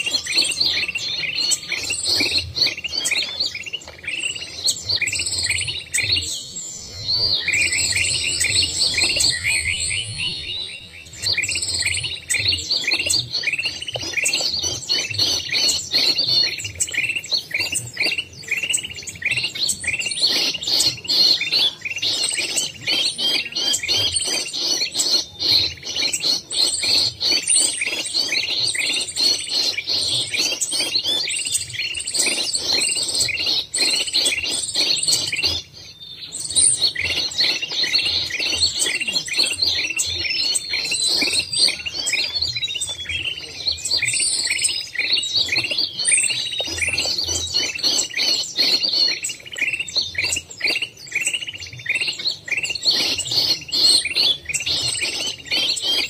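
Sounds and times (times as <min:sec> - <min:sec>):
songbirds chirping: 0:00.0 - 0:56.0.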